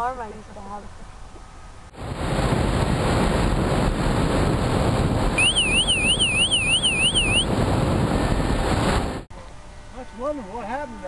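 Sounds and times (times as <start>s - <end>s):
rush of airflow: 1.9s - 5.4s
electronic siren warbling: 5.4s - 7.5s
motor noise: 5.4s - 7.5s.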